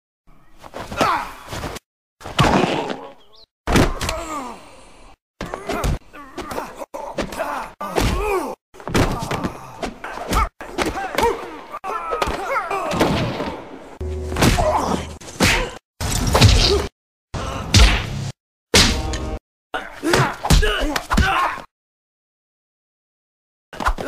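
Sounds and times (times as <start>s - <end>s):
fight thumps and whacks: 0.7s - 3.1s, 3.7s - 4.3s, 5.4s - 11.4s, 12.2s - 13.6s, 14.3s - 16.9s, 17.7s - 19.2s.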